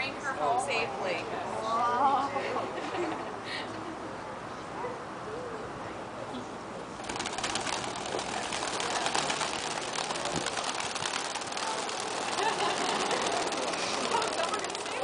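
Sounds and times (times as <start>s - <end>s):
many wings flapping: 7.0s - 15.0s.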